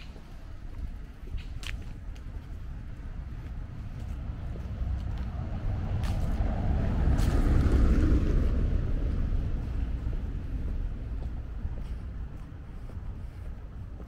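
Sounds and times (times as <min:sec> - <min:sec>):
vehicle passing by: 0:03.2 - 0:13.3.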